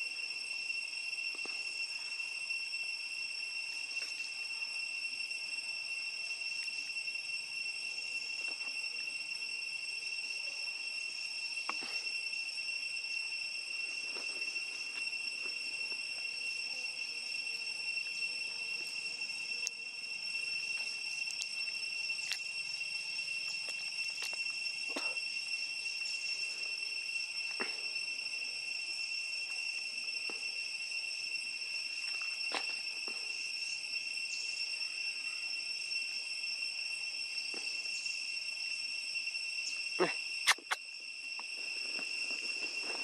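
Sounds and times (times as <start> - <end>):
insects buzzing: 0.0 - 43.0.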